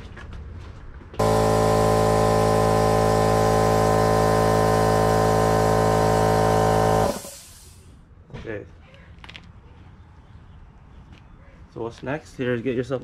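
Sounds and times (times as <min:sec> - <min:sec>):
air compressor running: 0:01.2 - 0:07.9.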